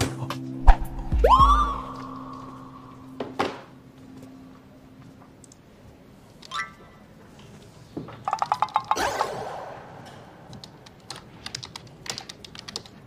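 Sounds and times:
pitched blips: 0:00.6 - 0:03.9.

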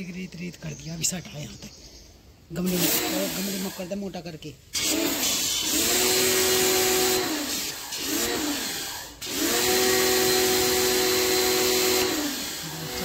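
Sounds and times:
water jet hissing: 0:02.6 - 0:04.0, 0:04.7 - 0:13.0
pressure washer motor whine: 0:02.7 - 0:04.0, 0:04.8 - 0:13.0.

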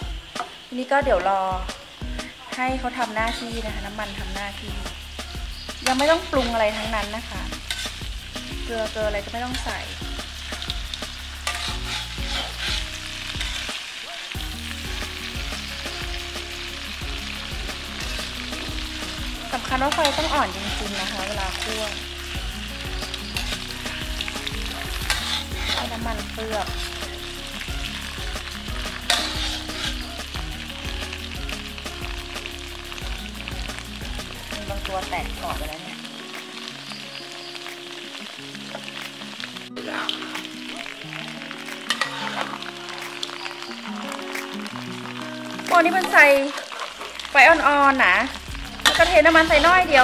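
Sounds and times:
oil sizzling: 0:00.0 - 0:50.0
metal spatula scraping a wok: 0:03.0 - 0:14.0, 0:15.2 - 0:30.4, 0:41.8 - 0:43.4, 0:45.1 - 0:50.0.

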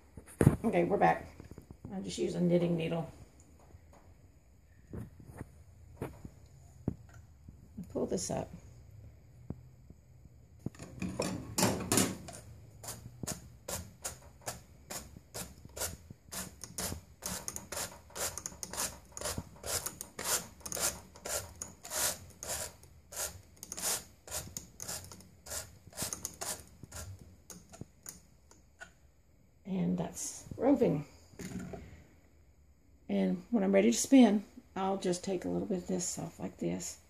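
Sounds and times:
brush scratching on carding cloth: 0:12.8 - 0:27.2.

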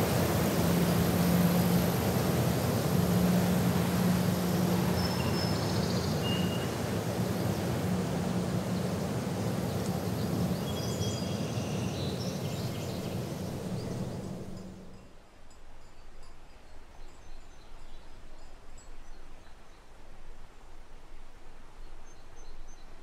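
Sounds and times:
steady low hum: 0:00.0 - 0:10.6, 0:12.1 - 0:15.0
rushing wind: 0:00.0 - 0:15.0
bird chirps: 0:04.5 - 0:06.8, 0:09.7 - 0:15.0.

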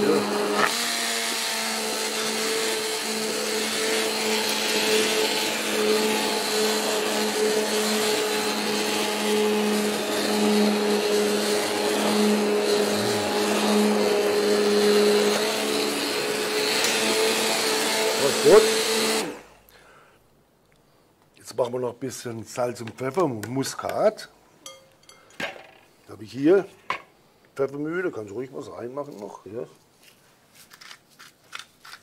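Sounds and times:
immersion blender whirring in liquid: 0:00.0 - 0:19.5.

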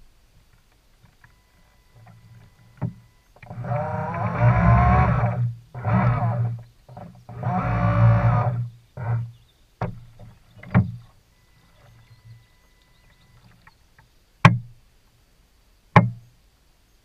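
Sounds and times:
faint steady whine: 0:00.0 - 0:17.0
sharp knocks with low ring: 0:16.0 - 0:16.2.

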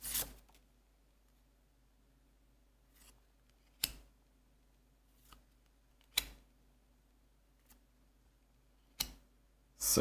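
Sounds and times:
cards brushing together: 0:00.0 - 0:00.5.

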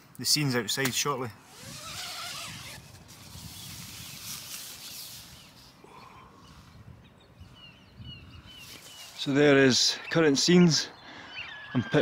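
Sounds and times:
tent fabric rustling: 0:01.4 - 0:05.8, 0:08.6 - 0:09.2
faint bird calls: 0:03.4 - 0:12.0.

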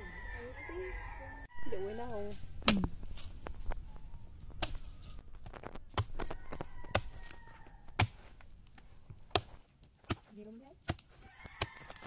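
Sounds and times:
machete chopping coconut: 0:04.6 - 0:04.9, 0:05.9 - 0:08.4, 0:09.3 - 0:12.0.

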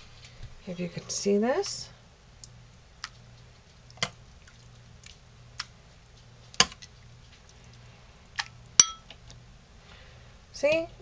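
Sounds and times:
food squishing: 0:02.4 - 0:09.4
metal spoon clinking on pot: 0:08.8 - 0:09.1.

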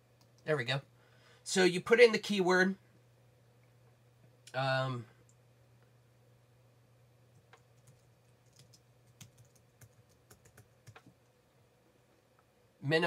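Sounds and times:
low steady hum: 0:00.0 - 0:13.0
keyboard typing: 0:07.3 - 0:11.1.

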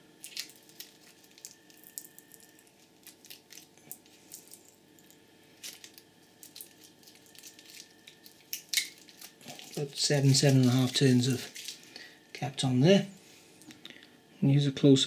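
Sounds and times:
tape peeling off: 0:05.6 - 0:11.9.

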